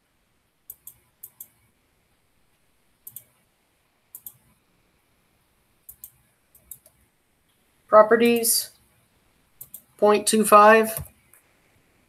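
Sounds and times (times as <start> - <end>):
computer mouse clicking: 0.7 - 1.6, 3.0 - 3.4, 4.1 - 4.6, 5.9 - 7.0, 9.6 - 10.0.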